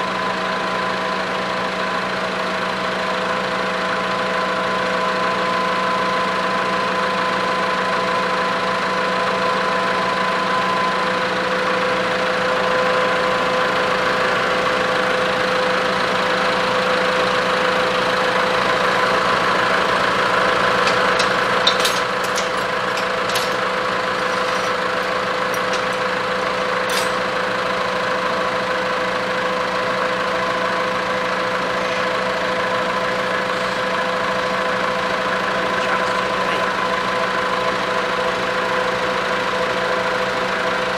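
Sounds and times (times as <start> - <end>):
motor humming: 17.9 - 27.9.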